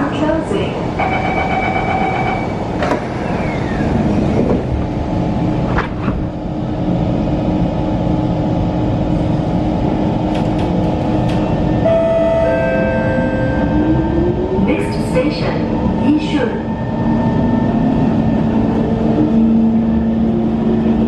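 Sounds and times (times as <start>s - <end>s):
train carriage hum: 0.0s - 21.0s
train doors shutting: 1.0s - 5.0s, 10.2s - 14.4s
door-closing chime: 11.9s - 14.0s.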